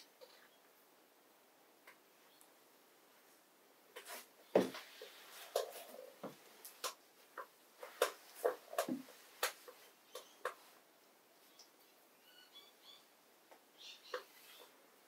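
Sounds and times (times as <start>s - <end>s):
hands rubbing and patting scalp: 4.0s - 10.8s.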